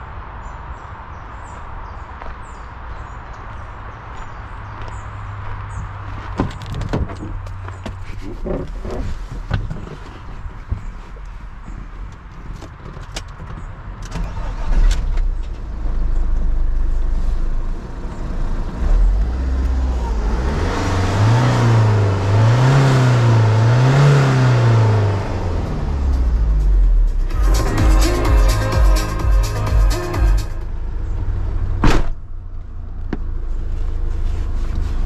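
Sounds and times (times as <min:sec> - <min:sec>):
diesel engine idling and revving: 0:13.2 - 0:35.0.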